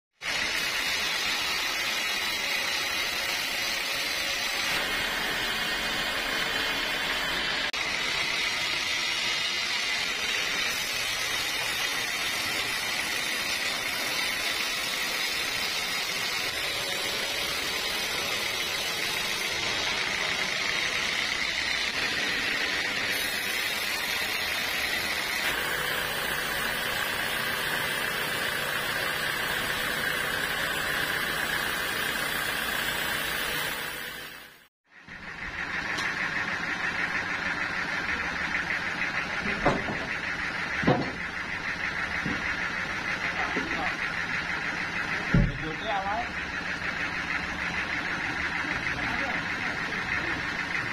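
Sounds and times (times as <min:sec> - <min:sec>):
band saw cutting wood: 0:00.1 - 0:34.7.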